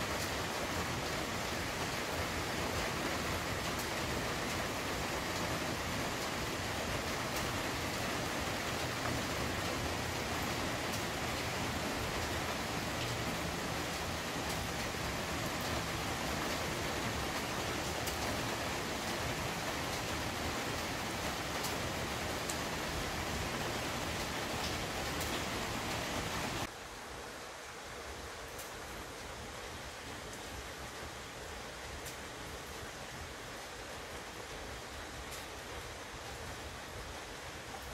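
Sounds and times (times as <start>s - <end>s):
rain drops ticking: 0.0s - 37.9s
steady rain hiss: 0.0s - 37.9s.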